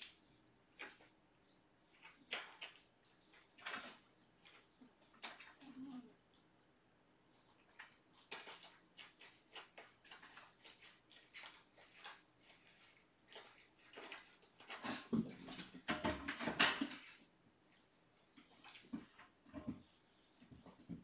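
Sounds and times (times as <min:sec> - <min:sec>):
kittens rustling on bedding: 0:07.4 - 0:21.0.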